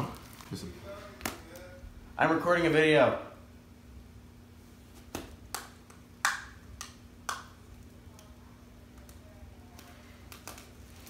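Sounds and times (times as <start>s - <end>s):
bubble wrap crackling: 0.0s - 1.8s, 9.0s - 11.0s.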